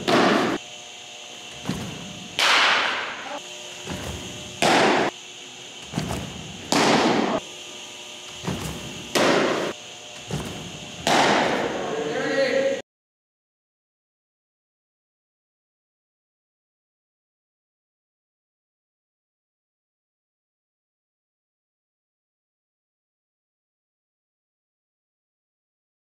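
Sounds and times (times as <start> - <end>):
baseballs smacking with echo: 0.0 - 0.6, 1.6 - 5.2, 5.8 - 7.4, 8.3 - 12.0.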